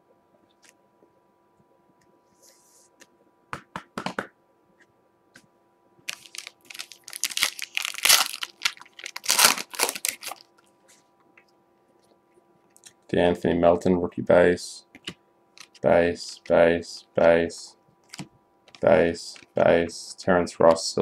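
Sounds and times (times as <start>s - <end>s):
foil wrapper crinkling and tearing: 6.1s - 10.6s.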